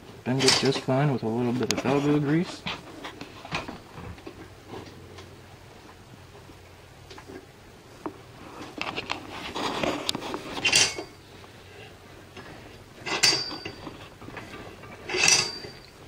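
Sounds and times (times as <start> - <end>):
sharp metallic clanks: 10.6 - 11.2, 13.0 - 16.0.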